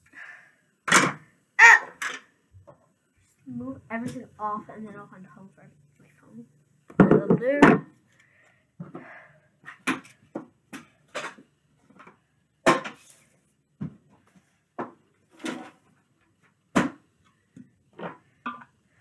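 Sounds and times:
small objects knocking on wooden desk: 0:06.9 - 0:07.9.

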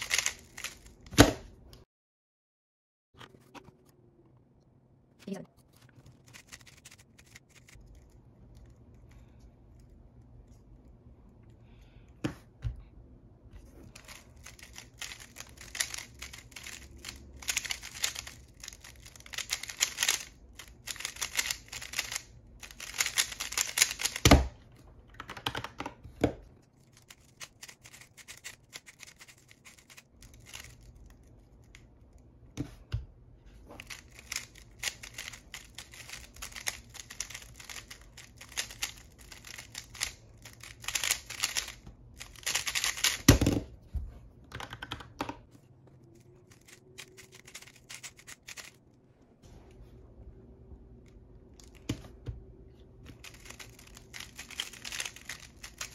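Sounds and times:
puzzle cube clicking: 0:00.0 - 0:01.0, 0:14.0 - 0:24.3, 0:27.1 - 0:30.8, 0:33.8 - 0:43.4, 0:53.2 - 0:55.9.

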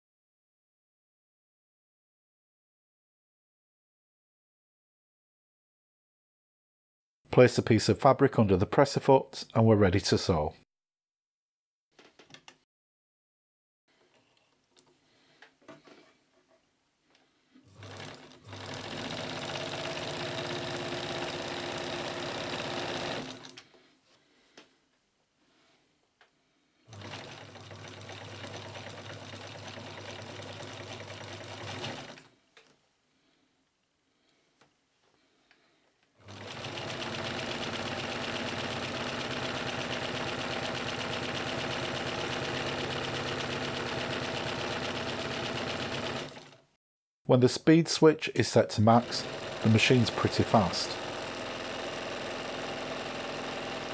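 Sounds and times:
sewing machine stitching: 0:17.7 - 0:23.6, 0:26.9 - 0:32.3, 0:36.2 - 0:46.6, 0:48.9 - 0:53.9.

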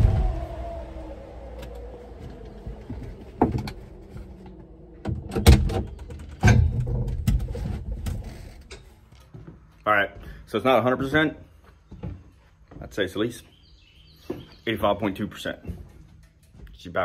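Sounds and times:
low steady rumble: 0:00.0 - 0:08.7.

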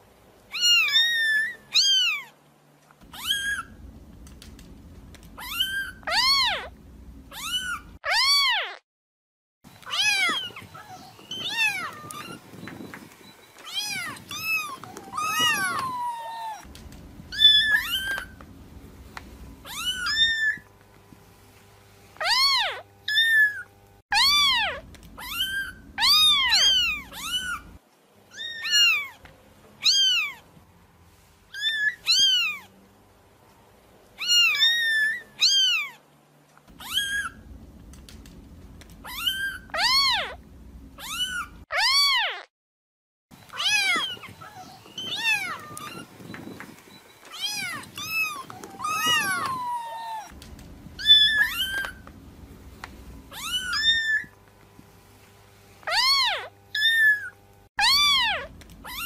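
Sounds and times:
kittens mewing: 0:03.0 - 0:03.8, 0:05.2 - 0:08.8, 0:13.6 - 0:18.4, 0:19.6 - 0:20.6, 0:22.2 - 0:29.2, 0:36.7 - 0:42.5, 0:43.5 - 0:46.1, 0:47.3 - 0:52.1, 0:52.8 - 0:54.3, 0:55.8 - 0:59.0.

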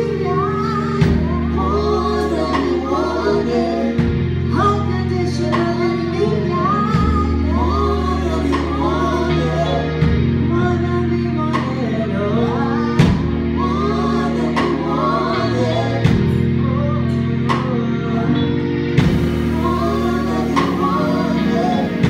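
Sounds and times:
live soul gospel band: 0:00.0 - 0:22.0
drum accents: 0:19.0 - 0:21.7.

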